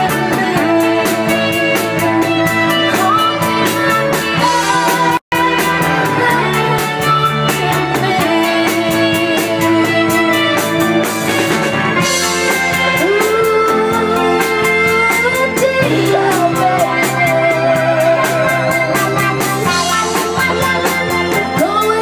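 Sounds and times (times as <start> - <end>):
bass guitar: 0.0 - 22.0
drum kit steady beat: 0.0 - 22.0
electric guitar: 0.0 - 22.0
keyboard: 0.0 - 22.0
woman singing: 0.0 - 22.0.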